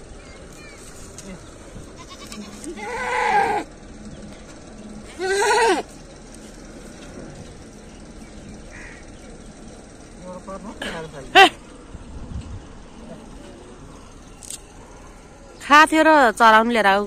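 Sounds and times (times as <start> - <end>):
goat bleating: 1.6 - 3.7, 5.0 - 6.0.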